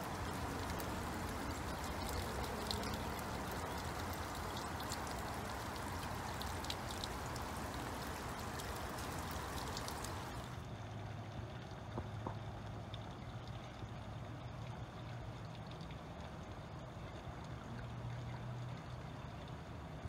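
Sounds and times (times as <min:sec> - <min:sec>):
water splashing down rain chain: 0:00.0 - 0:10.6
water drips ticking: 0:00.0 - 0:10.7, 0:11.5 - 0:20.0
steady rain: 0:00.0 - 0:11.2.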